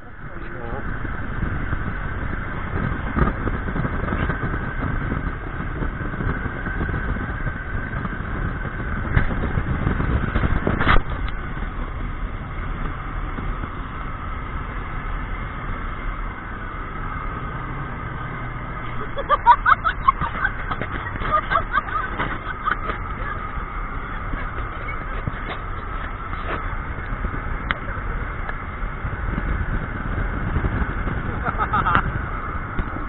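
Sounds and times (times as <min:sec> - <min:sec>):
vehicle engine and road rumble: 0:00.0 - 0:33.0.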